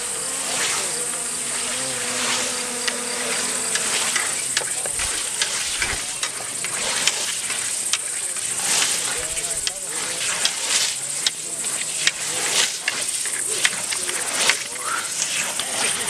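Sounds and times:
insects chirring: 0:00.0 - 0:16.0
scythes swishing through grass: 0:05.0 - 0:15.6.

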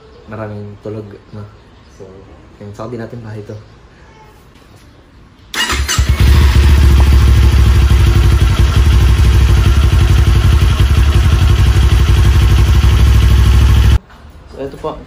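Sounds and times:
motorcycle engine idling: 0:05.6 - 0:14.0.

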